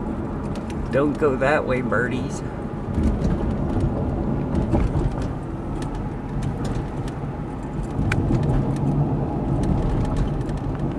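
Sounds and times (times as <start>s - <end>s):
car road and engine rumble: 0.0s - 10.9s
light clicks and rattles: 3.0s - 10.9s.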